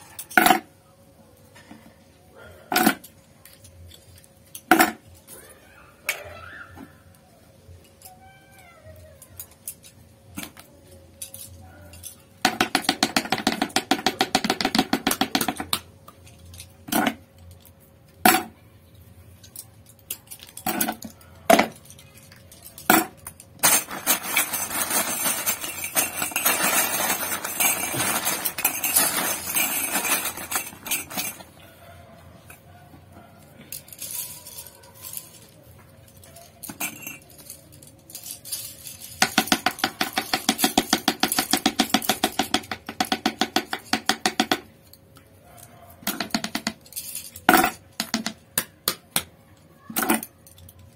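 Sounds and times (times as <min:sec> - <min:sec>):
metal parts clinking on workbench: 0:02.7 - 0:05.3, 0:09.2 - 0:18.6, 0:19.4 - 0:31.6, 0:33.6 - 0:45.1, 0:46.0 - 0:48.5, 0:49.8 - 0:50.9
dense rattling and rustling: 0:20.4 - 0:31.6.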